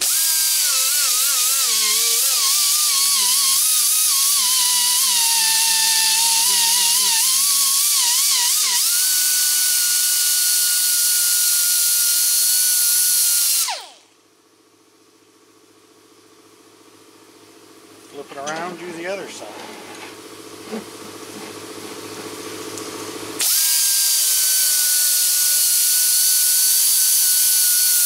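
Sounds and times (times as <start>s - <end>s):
angle grinder whining on steel: 0.0s - 14.0s, 23.4s - 28.0s.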